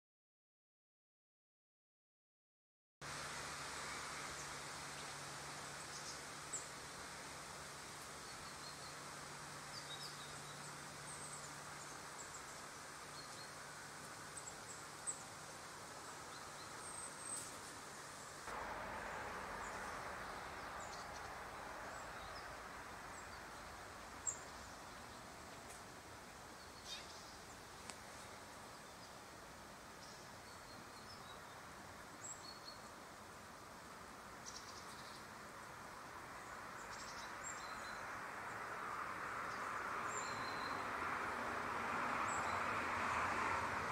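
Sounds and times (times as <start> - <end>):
steady soft hiss: 3.0 - 38.6
faint bird chirps: 26.5 - 27.7.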